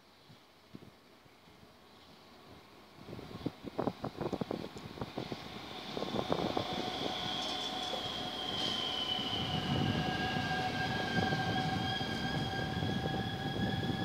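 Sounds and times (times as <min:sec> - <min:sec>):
electric train whine: 0:01.4 - 0:14.0.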